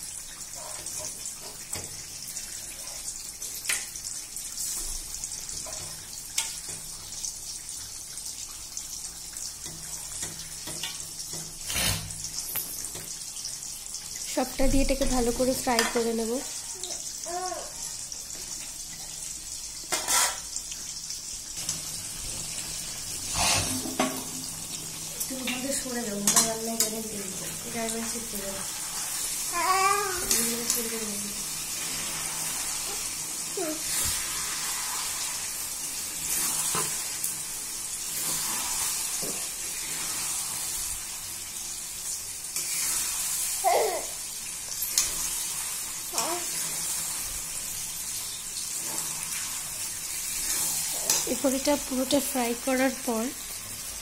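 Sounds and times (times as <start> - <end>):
oil sizzling: 0.0 - 54.0
metal spatula scraping pan: 19.9 - 20.5, 23.3 - 24.3.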